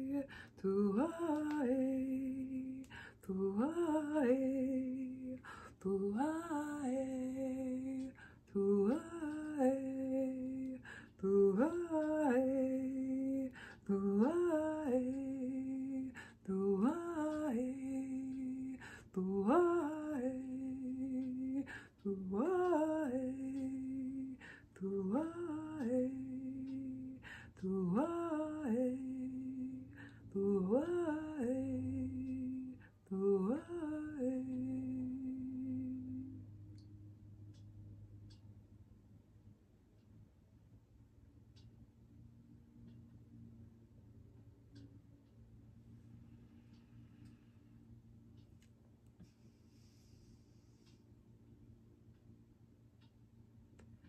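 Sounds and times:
woman chanting: 0.0s - 36.6s.

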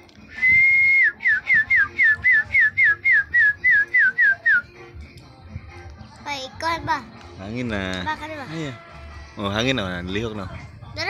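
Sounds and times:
person whistling: 0.2s - 4.7s.

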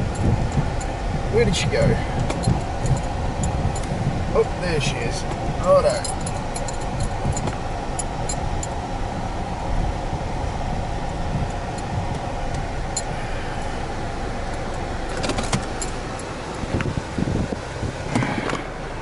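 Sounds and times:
car engine and tyre rumble: 0.0s - 19.0s
cabin rattles and clicks: 15.1s - 15.9s.

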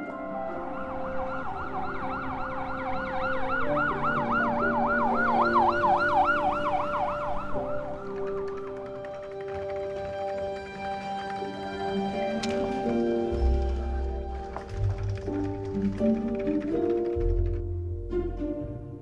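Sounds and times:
background music sustained notes: 0.0s - 19.0s
siren yelping: 0.5s - 7.9s.

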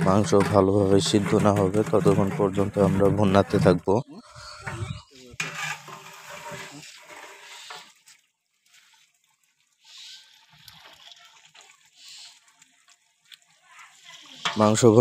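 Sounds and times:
faint sloshing of stirred gravy: 4.9s - 15.0s.

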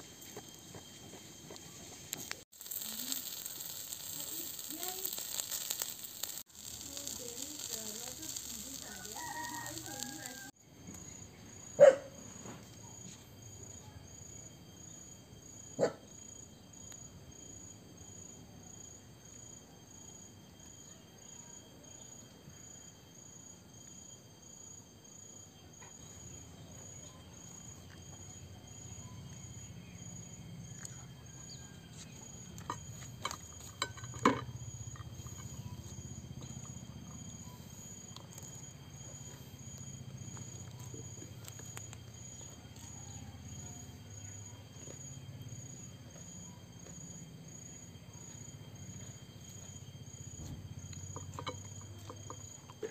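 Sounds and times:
high-pitched insect calls: 0.0s - 11.9s, 12.6s - 52.9s
chicken hissing over coals: 1.1s - 10.6s
rooster and chickens calling: 8.6s - 10.6s
knocks and clinks on a plate: 32.7s - 34.5s.

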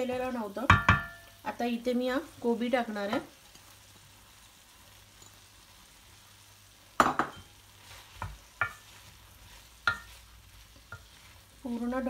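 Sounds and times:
faint sizzle: 0.0s - 12.0s
spoon knocking against pan: 0.7s - 1.2s, 7.0s - 7.5s, 8.2s - 8.8s, 9.8s - 10.1s
spoon stirring cabbage in pan: 2.8s - 12.0s.

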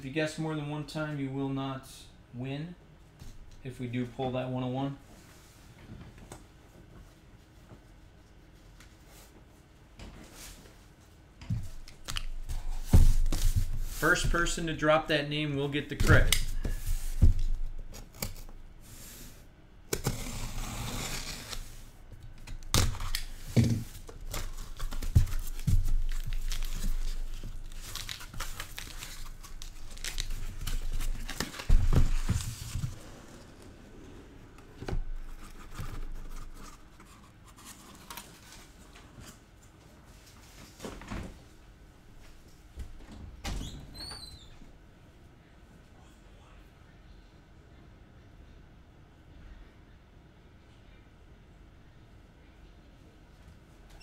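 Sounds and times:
packaging tearing and crinkling: 24.0s - 32.8s.

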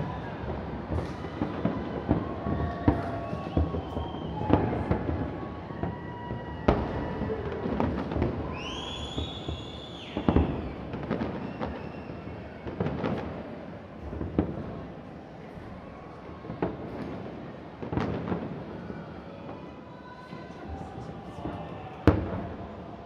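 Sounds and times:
rising firework whistle: 0.0s - 13.2s
fireworks bangs and crackles: 0.0s - 23.0s.

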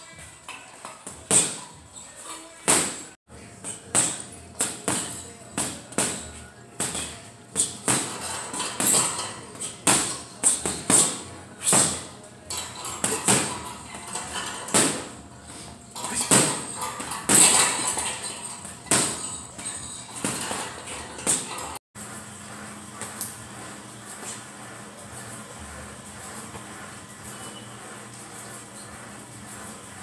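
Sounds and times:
punches thudding on heavy bag: 3.8s - 9.1s, 9.8s - 12.1s, 13.0s - 13.6s, 14.7s - 15.2s, 16.2s - 18.0s, 18.8s - 19.3s.

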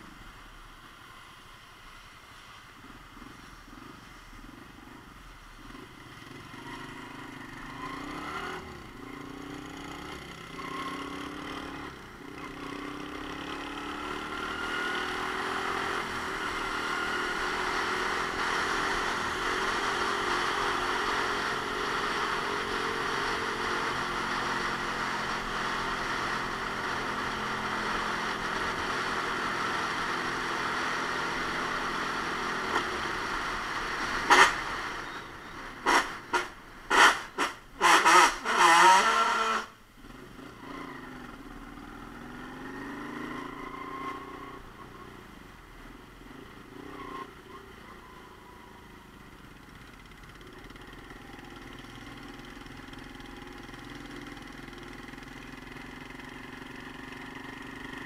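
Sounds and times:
motorcycle engine running: 48.1s - 58.0s.

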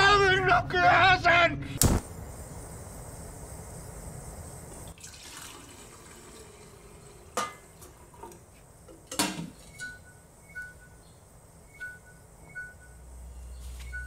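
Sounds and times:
pots knocking: 7.3s - 10.0s.

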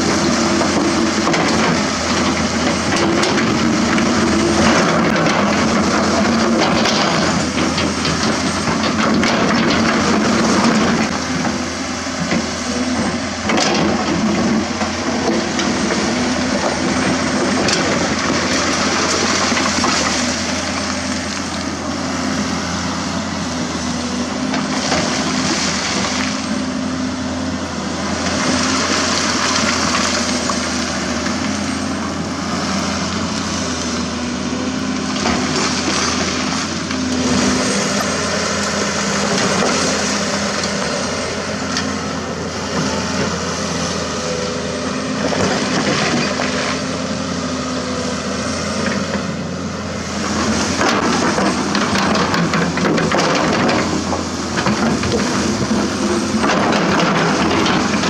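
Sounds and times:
bucket grinding through concrete rubble: 0.0s - 21.5s, 50.2s - 58.0s
excavator diesel engine running: 0.0s - 58.0s.

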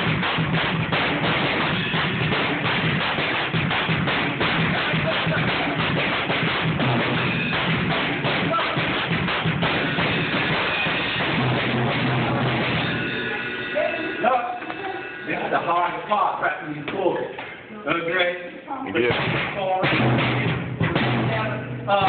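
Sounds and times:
drum kit beat: 0.0s - 17.7s, 19.0s - 22.0s.

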